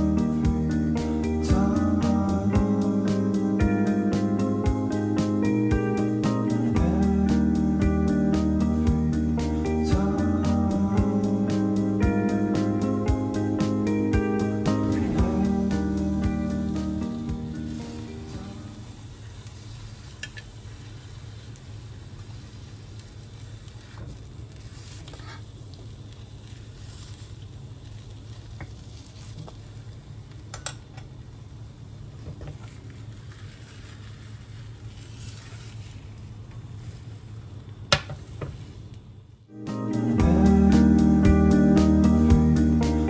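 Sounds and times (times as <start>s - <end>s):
steady low hum: 0.0s - 20.0s, 39.0s - 43.0s
egg sizzling in a pan: 0.0s - 39.0s.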